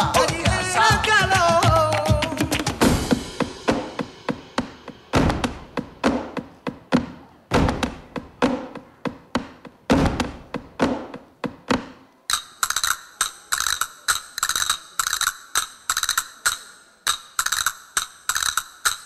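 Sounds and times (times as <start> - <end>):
heavy echoing knocks: 2.8 - 12.1
quick clicking rattles: 12.3 - 19.0.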